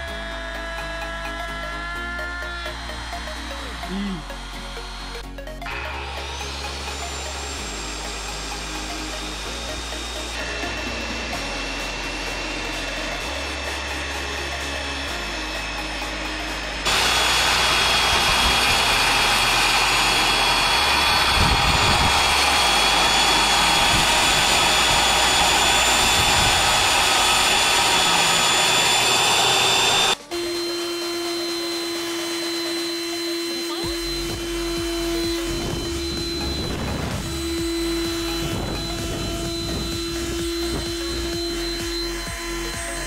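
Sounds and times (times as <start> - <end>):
background music: 0.0 - 43.0
circular saw cutting plastic: 0.0 - 43.0.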